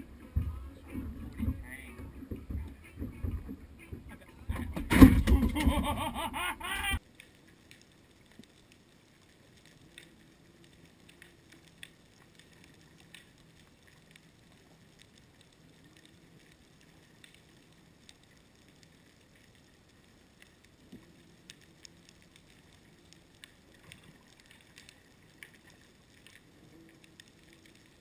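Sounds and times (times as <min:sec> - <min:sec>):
faint clicks: 0:07.0 - 0:28.0.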